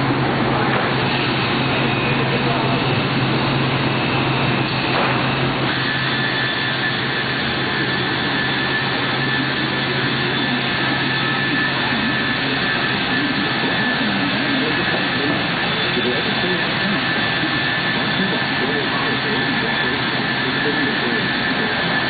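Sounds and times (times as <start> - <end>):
high machine whine: 0.0 - 22.0
woodworking machinery drone: 0.0 - 22.0.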